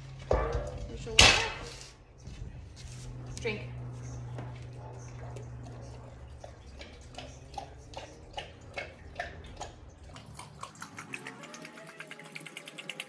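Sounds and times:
low steady hum: 0.0 - 13.0
dog lapping water: 4.8 - 13.0.

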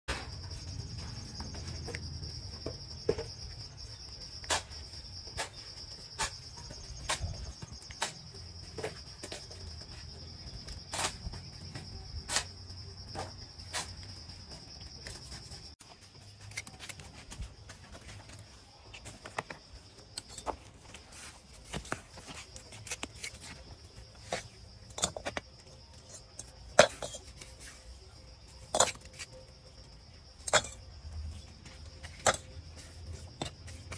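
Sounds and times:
trowel clinking and scraping: 19.0 - 33.9.

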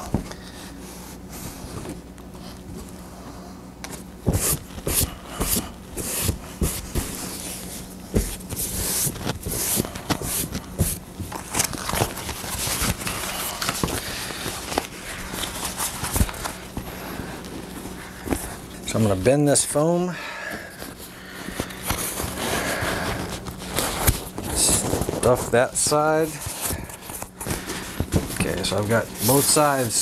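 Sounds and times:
faint hum: 0.0 - 30.0
cushion scuffing on wood: 4.3 - 11.0.

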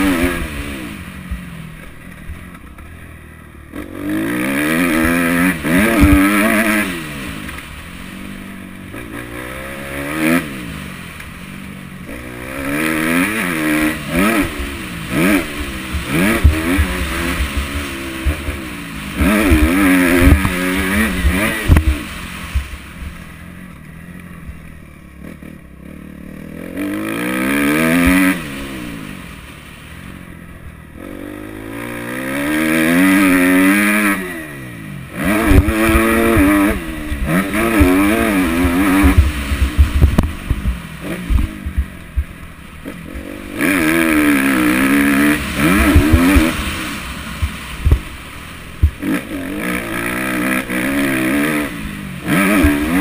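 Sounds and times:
dirt bike engine revving: 0.0 - 53.0
low thumps: 5.0 - 6.6, 14.1 - 23.1, 35.2 - 42.5, 45.2 - 49.1, 52.3 - 53.0.

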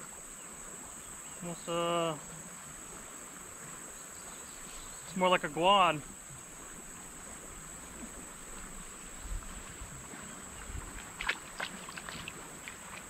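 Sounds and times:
water lapping against kayak: 0.0 - 13.0
fish splashing in water: 9.7 - 13.0.

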